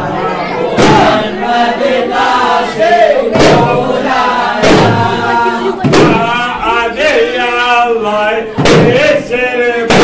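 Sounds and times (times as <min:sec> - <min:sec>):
men chanting in unison: 0:00.8 - 0:10.0
frame drum beats: 0:03.3 - 0:06.5, 0:08.6 - 0:09.2.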